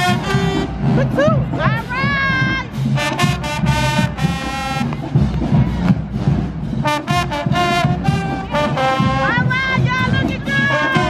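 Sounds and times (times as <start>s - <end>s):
brass band playing: 0.0s - 11.0s.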